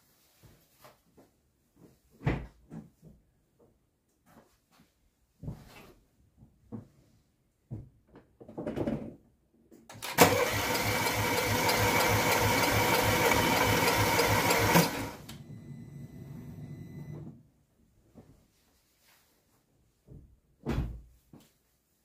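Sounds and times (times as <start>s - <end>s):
starter motor cranking engine: 9.9s - 15.4s.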